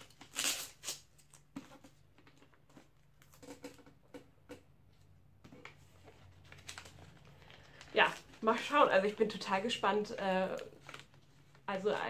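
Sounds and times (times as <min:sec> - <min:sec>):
paper ripping: 0:00.0 - 0:01.4
paper rustling: 0:05.5 - 0:09.4, 0:10.4 - 0:12.0.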